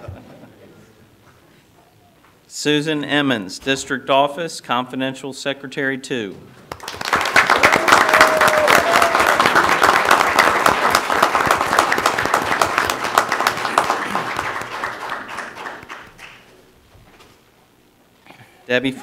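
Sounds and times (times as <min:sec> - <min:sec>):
crowd applause: 0:06.7 - 0:16.5.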